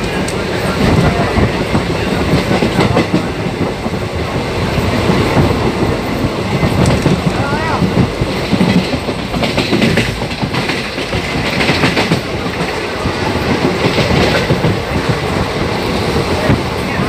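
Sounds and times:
train rumble: 0.0 - 17.0
wheels clattering over rail joints: 5.1 - 16.9.

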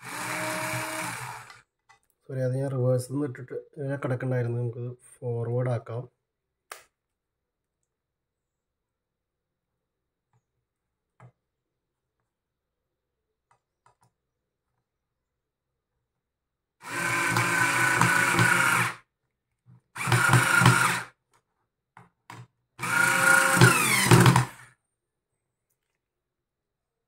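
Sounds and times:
cordless screwdriver whine: 0.0 - 1.6, 16.8 - 19.0, 20.0 - 21.1, 22.8 - 24.6.

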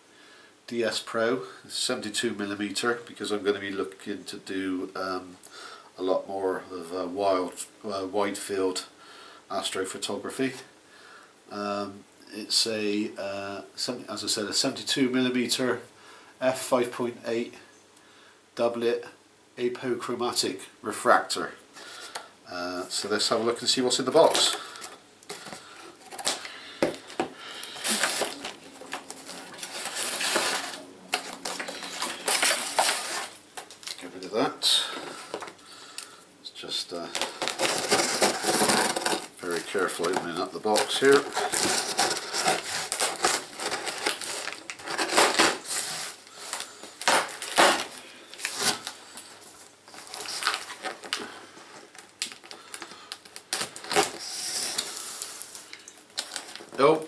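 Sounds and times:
straps rustling against cardboard: 23.0 - 35.6, 36.9 - 55.6
packing tape being cut: 27.6 - 33.4, 37.2 - 39.3, 40.7 - 49.0, 52.2 - 55.5.

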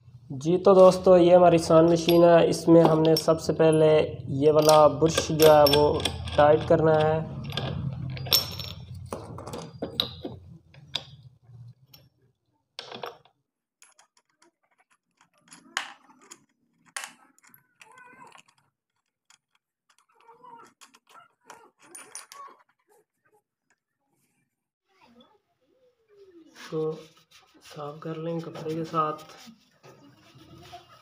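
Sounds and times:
metal clinks and scrapes: 0.8 - 12.1, 12.8 - 22.9.

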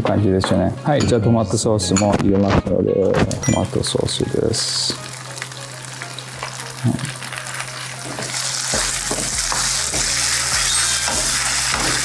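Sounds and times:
meat sizzling in a frying pan: 4.5 - 12.0.

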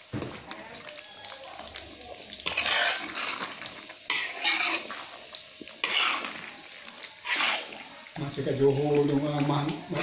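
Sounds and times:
metal spatula scraping a wok: 2.4 - 6.5, 7.1 - 7.9.

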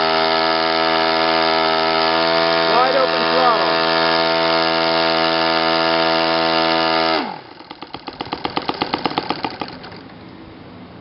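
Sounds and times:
model engine running at high pitch: 0.0 - 10.1
model engine idling: 0.0 - 10.2.

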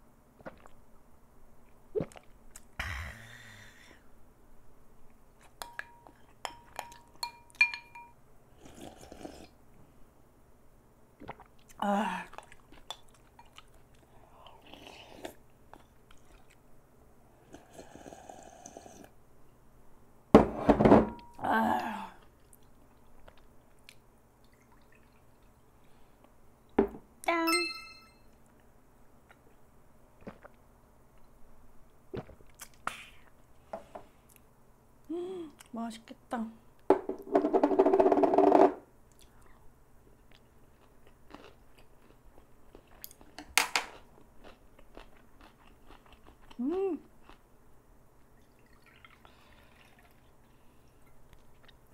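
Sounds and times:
person chewing food: 11.2 - 16.6, 22.2 - 24.0, 30.2 - 30.6, 32.1 - 33.4, 39.1 - 47.4, 48.9 - 51.9
sipping broth: 48.4 - 51.8.

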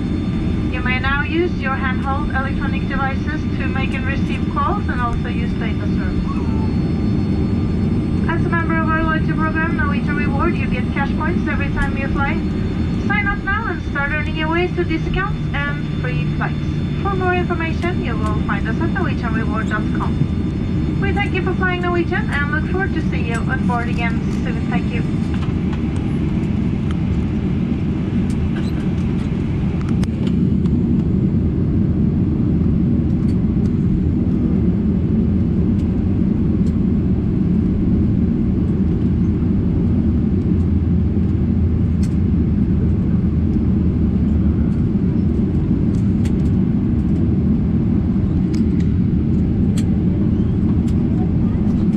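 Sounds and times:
aircraft cabin rumble: 0.0 - 51.9.

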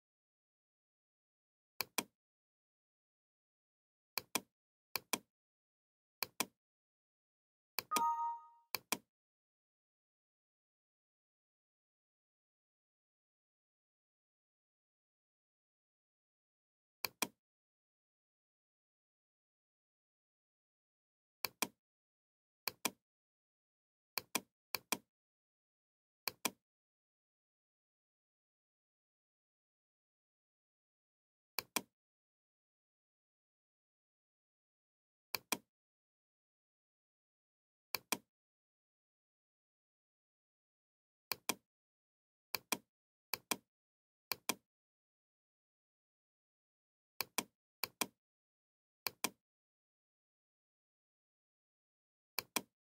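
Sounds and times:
computer mouse clicking: 1.8 - 2.1, 17.0 - 17.4
computer mouse clicks: 1.8 - 2.1, 4.2 - 5.3, 6.2 - 6.6, 17.0 - 17.4, 21.4 - 21.8, 44.3 - 44.6, 47.2 - 48.1, 52.4 - 52.7.

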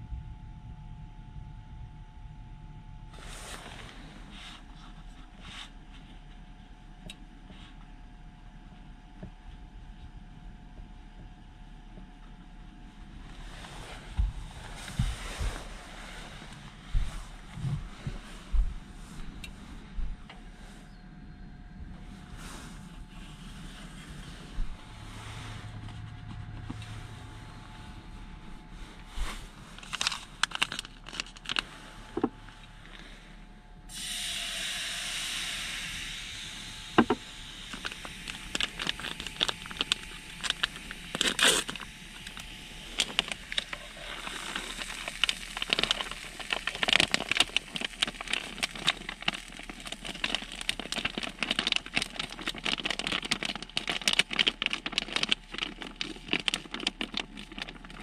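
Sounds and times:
plastic pouch crinkling and tearing: 29.7 - 32.3, 37.0 - 58.0
gas stove burner hissing: 33.9 - 46.3.

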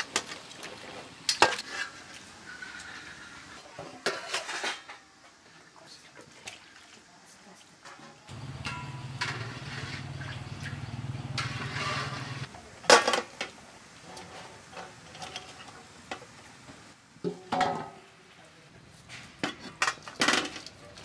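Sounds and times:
metal bowls clanking: 8.3 - 12.5.

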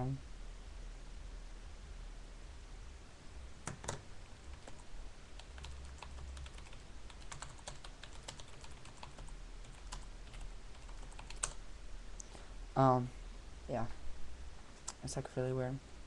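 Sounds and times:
typing on keyboard: 3.7 - 11.6.

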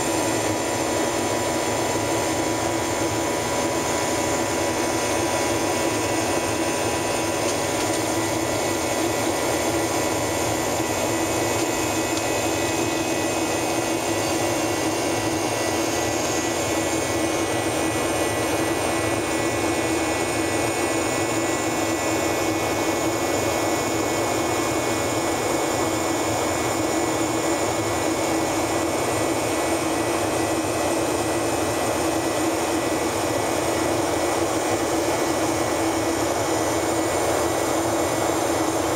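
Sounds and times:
jet engine drone: 0.0 - 38.9.

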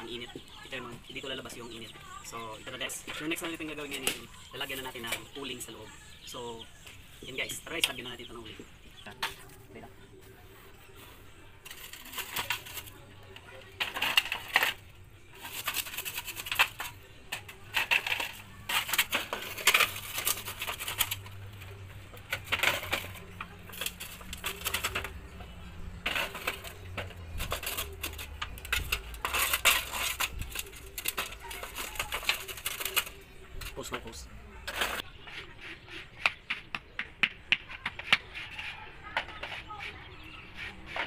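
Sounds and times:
metal scraping over embers: 0.0 - 36.0
charcoal clinking against metal: 11.6 - 35.0.

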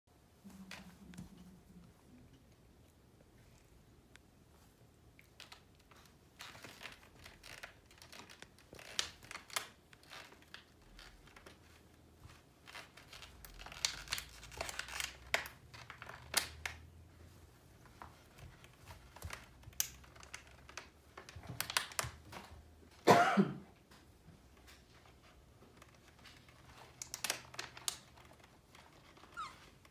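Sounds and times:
plastic bottle crinkling: 5.3 - 11.6, 12.6 - 16.8.

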